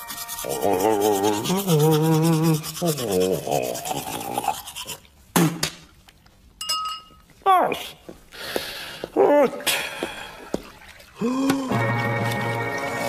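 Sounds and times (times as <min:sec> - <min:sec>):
toothbrush scrubbing teeth: 0:00.0 - 0:05.2
person humming: 0:00.4 - 0:04.6, 0:11.2 - 0:11.9.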